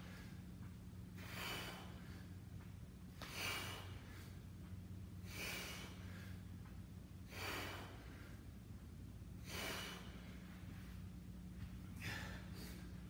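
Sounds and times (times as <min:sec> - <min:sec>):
man breathing hard: 0:00.0 - 0:00.4, 0:01.1 - 0:04.6, 0:05.2 - 0:06.6, 0:07.2 - 0:08.7, 0:09.4 - 0:11.0, 0:11.8 - 0:13.0
steady low hum: 0:00.0 - 0:13.0.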